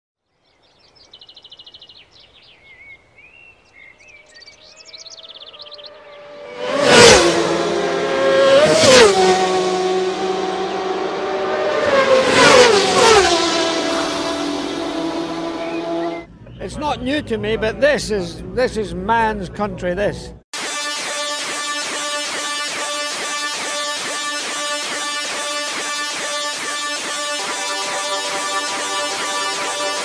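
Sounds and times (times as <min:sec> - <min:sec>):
birds chirping: 0:00.4 - 0:06.8, 0:14.1 - 0:17.2
racing motorcycles passing: 0:05.0 - 0:16.3, 0:21.8 - 0:30.0.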